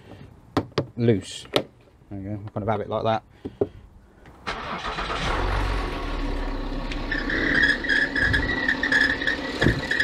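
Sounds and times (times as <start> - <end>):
car engine running: 5.1 - 10.0
high pulsing squeak: 6.9 - 10.0.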